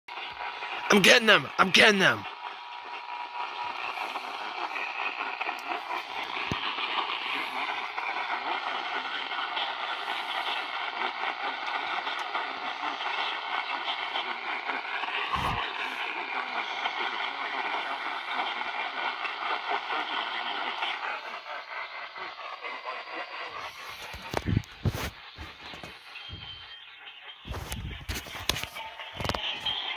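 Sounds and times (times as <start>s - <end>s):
radio static: 0.1s - 14.4s, 15.0s - 18.4s, 22.6s - 29.9s
faint wavering whistles: 25.2s - 29.9s.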